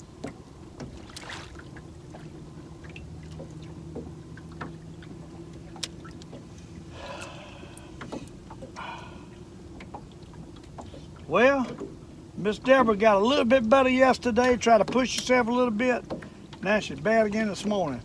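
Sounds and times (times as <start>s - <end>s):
steady low hum: 0.0s - 18.0s
light clicks and knocks: 3.0s - 7.3s, 8.0s - 8.8s, 9.7s - 12.0s, 14.3s - 15.4s, 16.0s - 17.9s.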